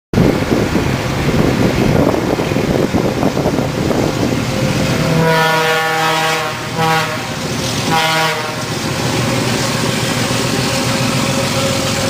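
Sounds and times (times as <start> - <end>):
low rumbling vehicle noise: 0.2 - 12.0
diesel locomotive horn: 4.4 - 9.7.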